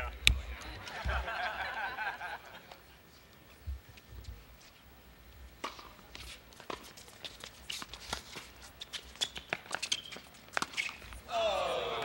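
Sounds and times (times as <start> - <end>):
rackets striking tennis ball: 9.1 - 11.1.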